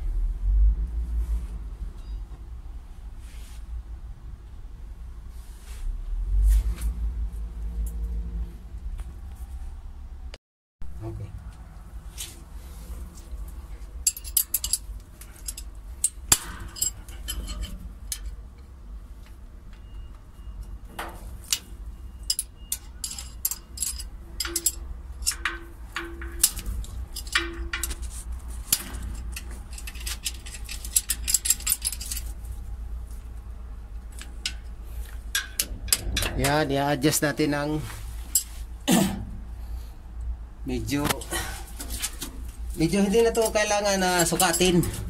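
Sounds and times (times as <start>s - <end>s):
low steady rumble: 0.0s - 45.0s
wrench clinking against metal: 14.0s - 18.4s, 21.5s - 32.4s, 43.2s - 45.0s.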